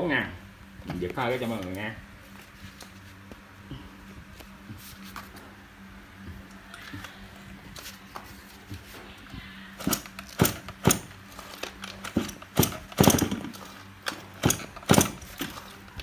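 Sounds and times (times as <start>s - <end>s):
recoil starter pulls: 9.8s - 15.7s.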